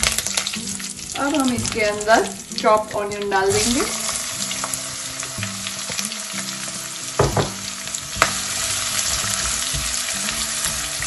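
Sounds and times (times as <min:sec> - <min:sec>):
onion sizzling in oil: 0:00.0 - 0:11.0
sharp knocks: 0:07.2 - 0:07.6
spatula stirring: 0:07.9 - 0:11.0.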